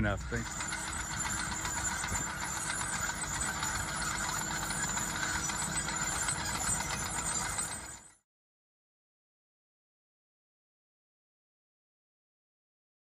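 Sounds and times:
tractor diesel engine running: 0.0 - 8.2.

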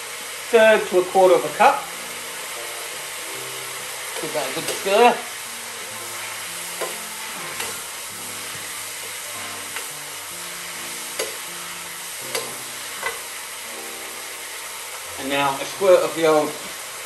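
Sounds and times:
vegetables sizzling in a wok: 0.0 - 17.0
metal spatula clicking on pan: 4.7 - 4.9, 12.3 - 13.2.

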